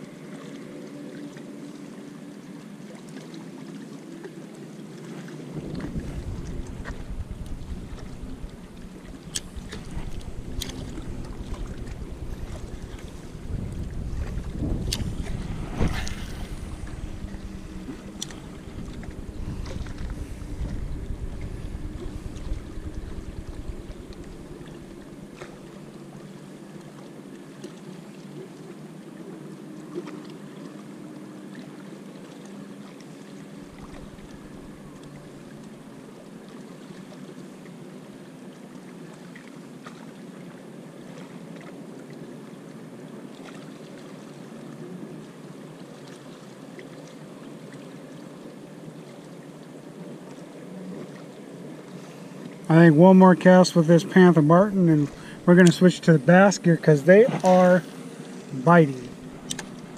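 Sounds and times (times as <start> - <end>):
rushing water: 0.0 - 59.9
wind buffeting microphone: 5.5 - 26.1, 33.7 - 35.4.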